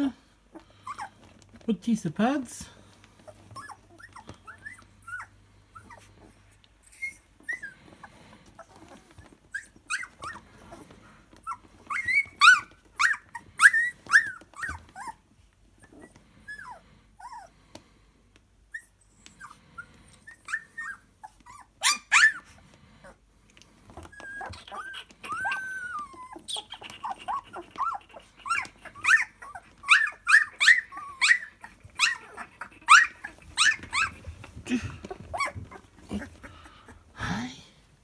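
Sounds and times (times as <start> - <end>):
puppies whimpering and squealing: 0.5 - 1.6, 3.1 - 17.6, 18.7 - 37.1.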